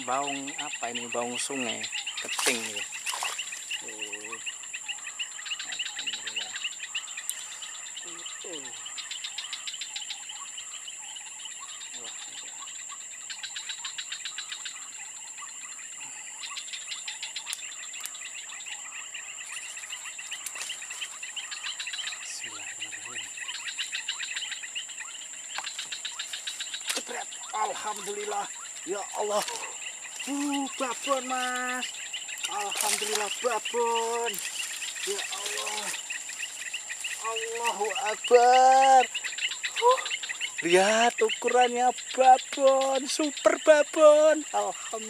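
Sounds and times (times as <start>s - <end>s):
fast pulsed insect trilling: 0.0s - 45.0s
insects chirring: 0.0s - 45.0s.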